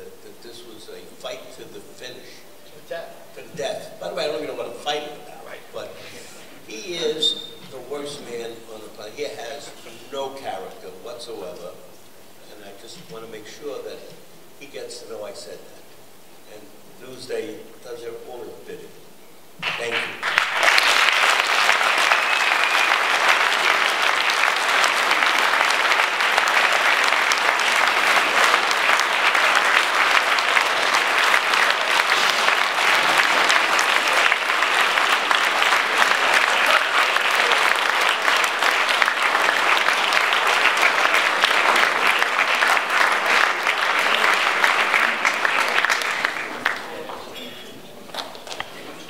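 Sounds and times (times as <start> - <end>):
crowd applauding: 19.6 - 49.0.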